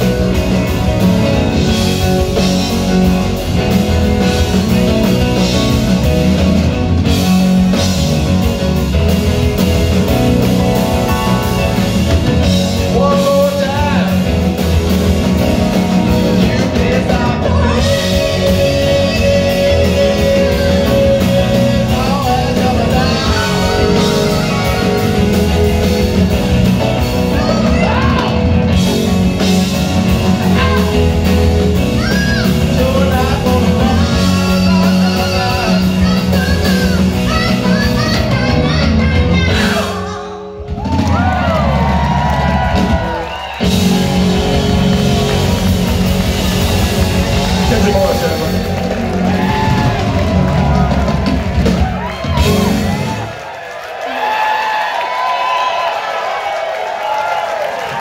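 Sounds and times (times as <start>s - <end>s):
rock band playing live: 0.0s - 58.0s
person singing: 12.6s - 14.4s, 15.6s - 26.2s, 30.3s - 40.6s.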